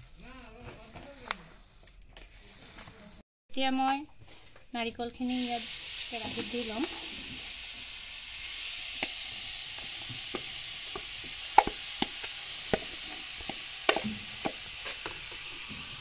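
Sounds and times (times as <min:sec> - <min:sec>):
coconut hissing in hot pan: 0:00.0 - 0:03.0, 0:05.1 - 0:16.0.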